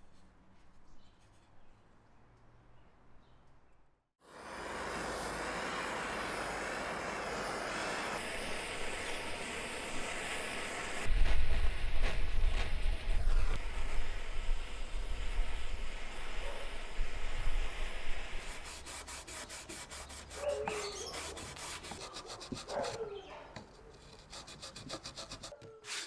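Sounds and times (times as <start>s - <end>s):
blowtorch hissing: 4.2s - 20.4s.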